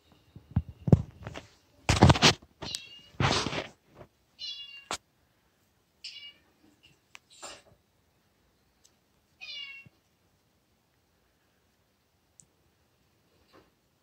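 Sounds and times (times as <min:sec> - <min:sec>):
brief rustle: 0:00.8 - 0:04.1
cat meowing: 0:09.4 - 0:10.0
faint clicks: 0:12.3 - 0:12.6.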